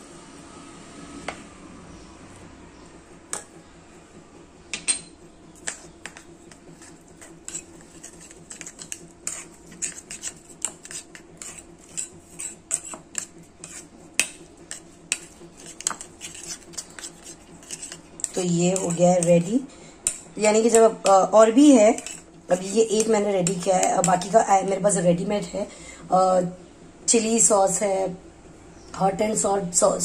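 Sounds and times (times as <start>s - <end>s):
metal spoon clinking in ceramic bowl: 4.8s - 5.2s.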